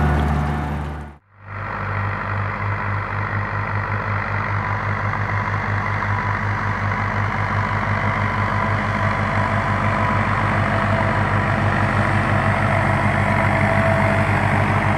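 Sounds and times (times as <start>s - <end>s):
tractor diesel engine under load: 0.0s - 14.9s.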